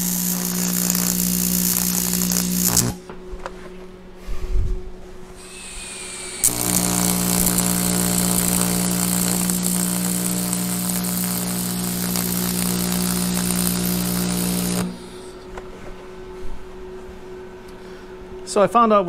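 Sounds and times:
welding arc buzzing and crackling: 0:00.0 - 0:03.1, 0:05.8 - 0:15.4.

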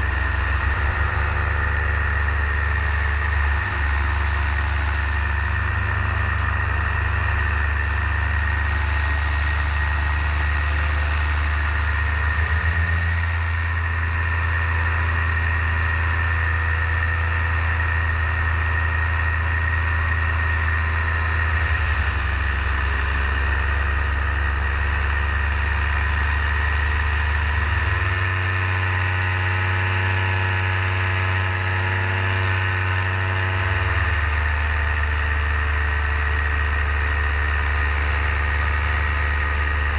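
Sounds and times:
paramotor engine droning: 0:00.0 - 0:39.9.

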